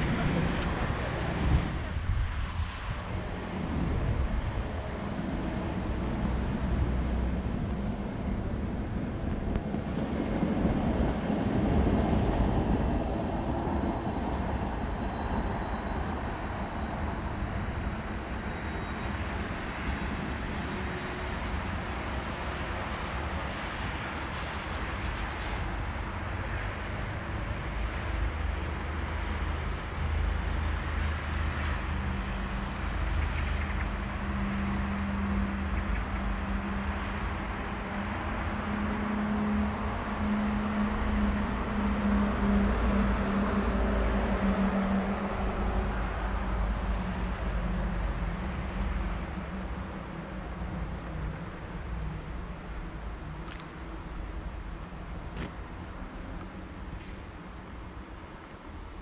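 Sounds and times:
low steady hum: 0.0 - 25.5
city traffic rumble: 0.0 - 59.0.

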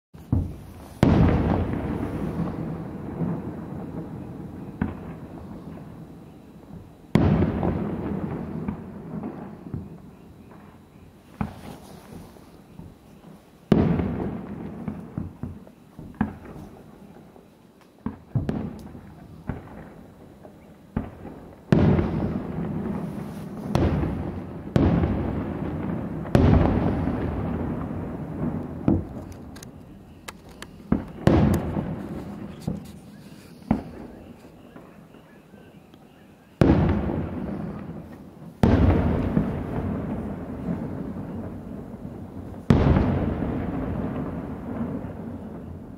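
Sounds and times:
firework shells bursting: 0.2 - 5.9, 18.0 - 34.9.

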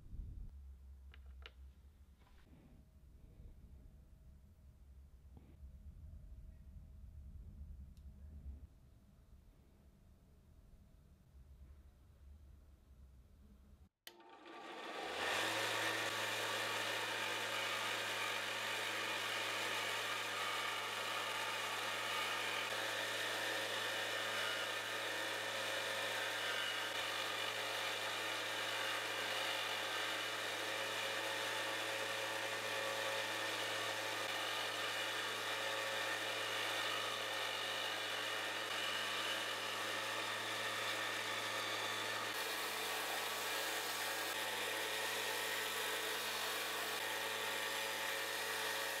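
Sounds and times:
power tool motor whirring: 14.1 - 49.0.

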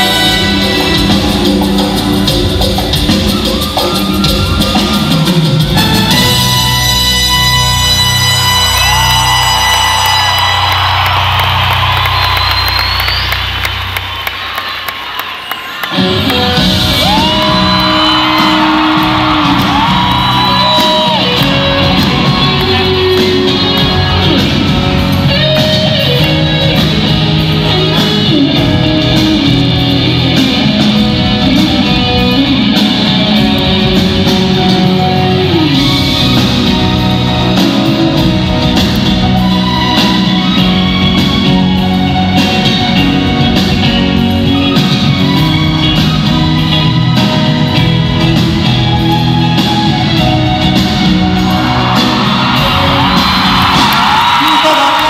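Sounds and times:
live band playing loudly: 0.0 - 55.0
crowd shouting: 16.9 - 25.1, 51.1 - 55.0.

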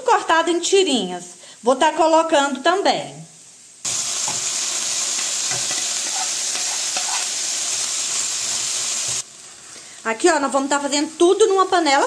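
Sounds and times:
food sizzling in a wok: 2.4 - 12.0.

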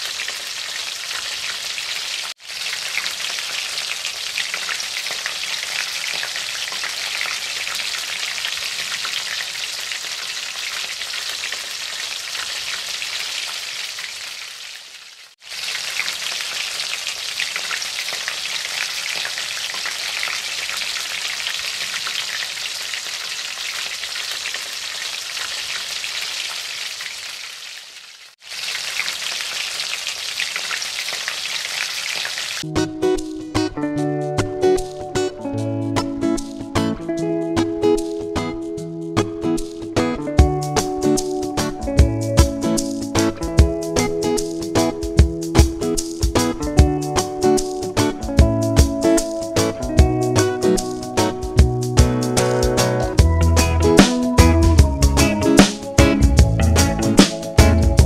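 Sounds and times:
fish sizzling in a pan: 0.0 - 32.6
guitar music: 32.6 - 58.0.

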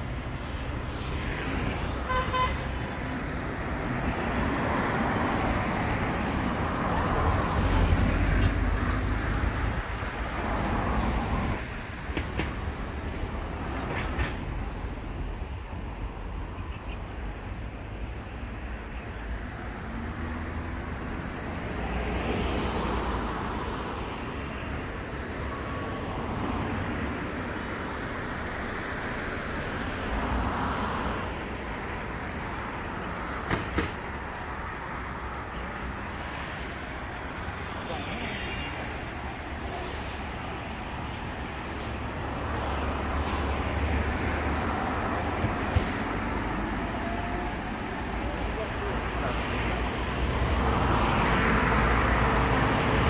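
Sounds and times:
road traffic passing: 0.0 - 53.0.

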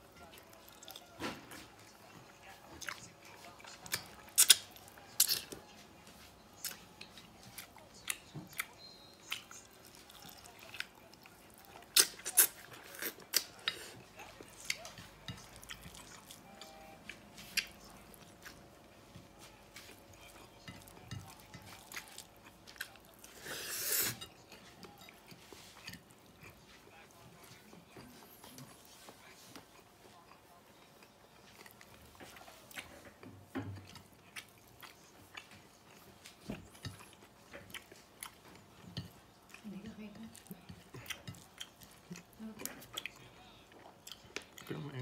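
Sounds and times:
chewing with wet mouth clicks: 0.2 - 19.2, 19.8 - 23.3, 33.8 - 39.7, 40.3 - 44.9.

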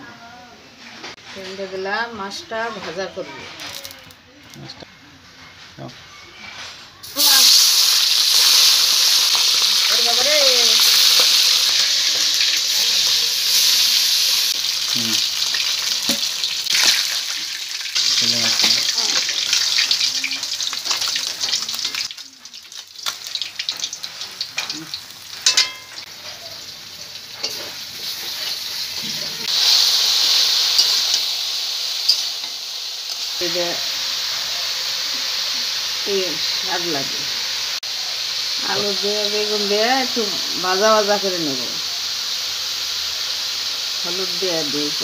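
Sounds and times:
fish sizzling in hot oil: 7.0 - 45.0
spatula scraping a wok: 25.3 - 32.7.

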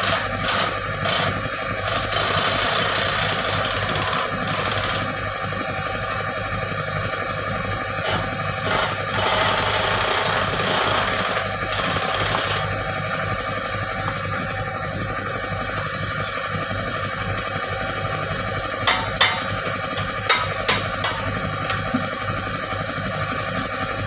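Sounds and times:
diesel engine idling: 5.1 - 9.0, 12.6 - 24.0.

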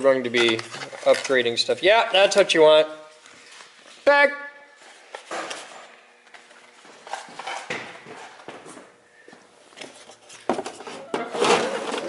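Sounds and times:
boxes and parts handled on shelves: 0.0 - 1.7, 4.8 - 12.0.

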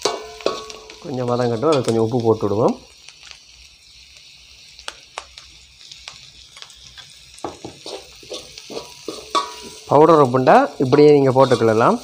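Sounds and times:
metal spoon stirring in wok: 0.0 - 2.2, 6.6 - 12.0
vegetables sizzling in oil: 0.0 - 12.0.

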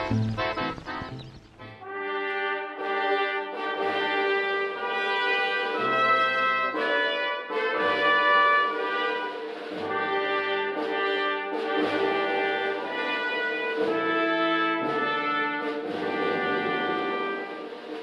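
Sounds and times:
held instrumental chords: 0.0 - 1.8.

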